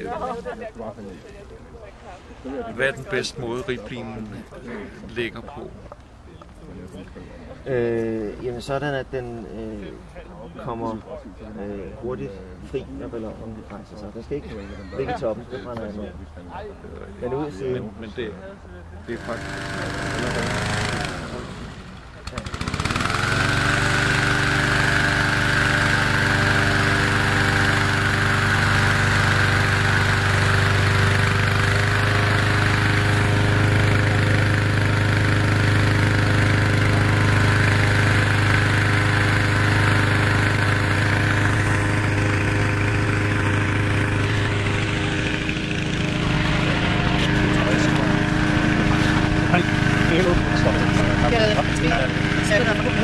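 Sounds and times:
petrol engine fan running: 0:00.0 - 0:00.2, 0:19.0 - 0:53.0.

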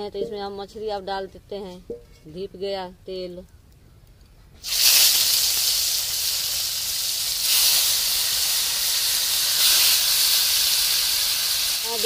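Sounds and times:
fish sizzling in oil: 0:04.6 - 0:12.0.

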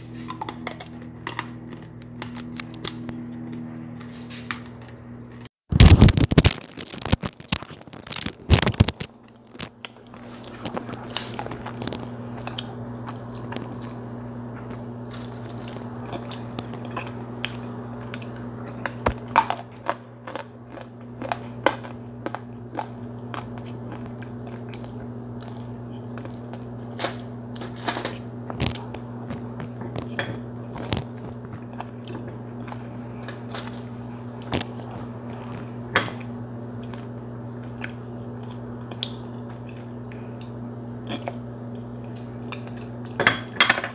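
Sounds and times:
steady low hum: 0:00.0 - 0:43.9
chewing with crisp cracks: 0:00.2 - 0:05.4, 0:06.4 - 0:43.2
crunching bites: 0:05.8 - 0:13.9, 0:15.1 - 0:33.8.

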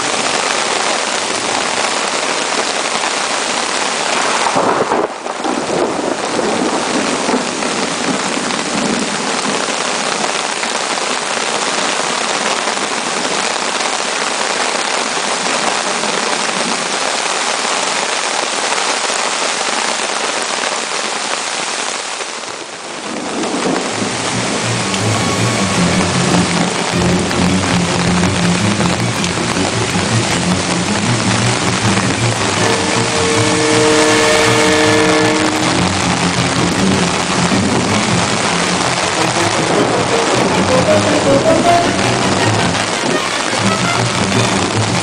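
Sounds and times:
heavy rain on foliage: 0:00.0 - 0:45.0.

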